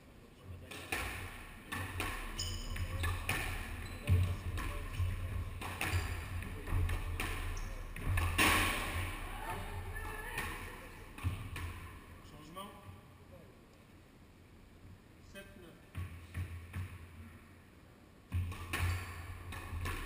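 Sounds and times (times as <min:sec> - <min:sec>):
squash ball striking rackets and walls: 0:00.7 - 0:12.2, 0:15.9 - 0:17.3, 0:18.3 - 0:20.0
sneakers squeaking on wooden floor: 0:01.8 - 0:09.2, 0:18.4 - 0:20.0.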